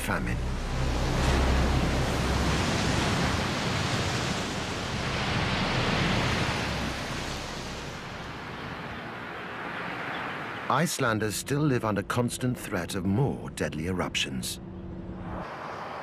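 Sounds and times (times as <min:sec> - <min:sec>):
deep rumble: 0:00.0 - 0:09.0
water churning and surging: 0:00.0 - 0:11.6.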